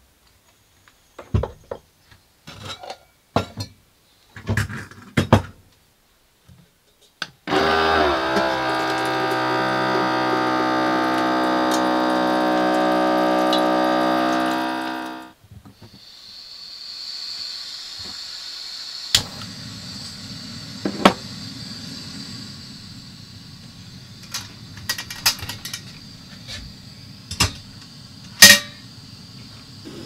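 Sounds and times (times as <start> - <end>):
water pouring into pot: 7.5 - 15.3
water pump whining: 7.5 - 15.4, 17.7 - 30.0.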